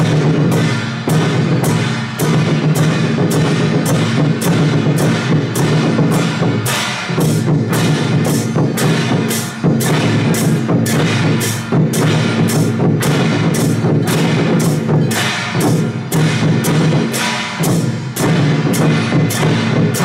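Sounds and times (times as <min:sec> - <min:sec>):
barrel drums beating: 0:00.0 - 0:20.0
hand cymbals clashing: 0:00.0 - 0:20.0.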